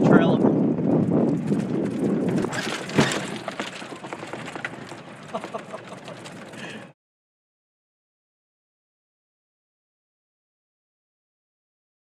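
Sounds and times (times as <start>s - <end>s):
vehicle rolling over dirt: 0.3s - 7.0s.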